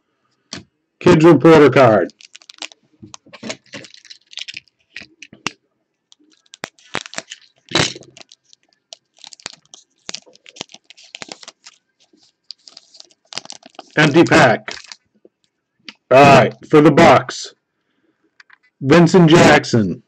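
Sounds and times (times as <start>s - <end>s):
cards rustling and clicking: 1.8s - 16.1s
foil wrapper crinkling and tearing: 2.0s - 15.1s.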